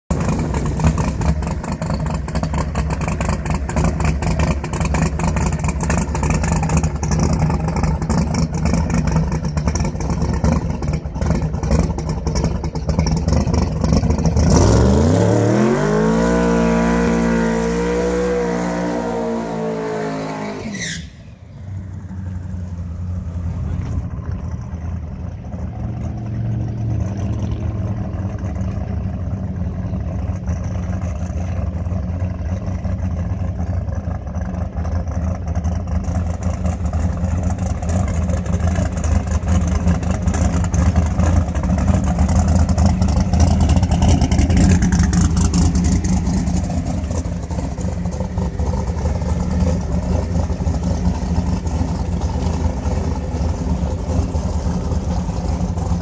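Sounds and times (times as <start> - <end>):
racing car engine idling and revving: 0.0 - 56.0.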